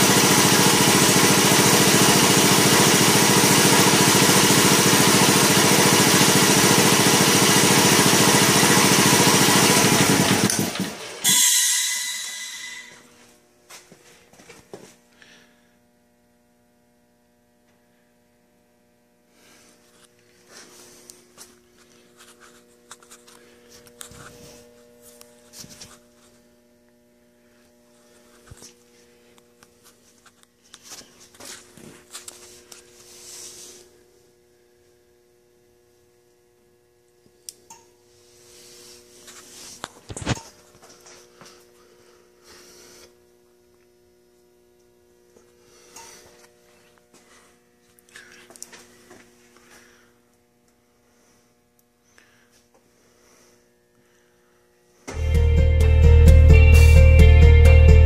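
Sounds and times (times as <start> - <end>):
air compressor running: 0.0 - 13.4, 19.3 - 30.2, 38.1 - 43.5, 52.2 - 58.0
faint electrical hum: 12.5 - 55.2.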